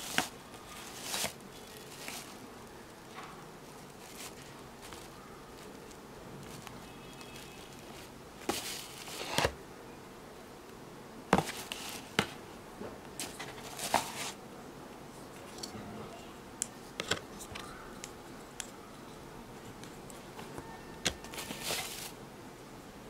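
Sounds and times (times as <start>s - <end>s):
paper rustling: 0.0s - 2.4s, 3.1s - 9.6s, 11.3s - 12.4s, 13.2s - 14.4s, 20.2s - 22.2s.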